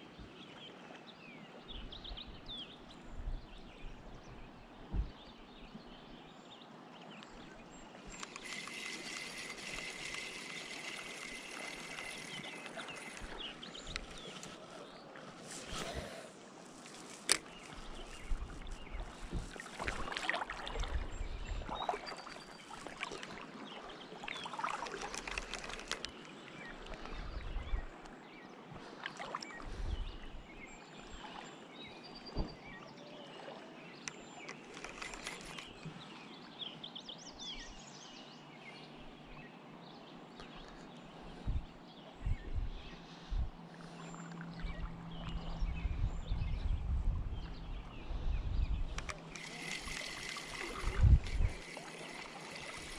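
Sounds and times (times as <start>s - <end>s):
water splashing and sloshing: 7.1s - 27.4s, 43.5s - 45.8s, 48.9s - 52.9s.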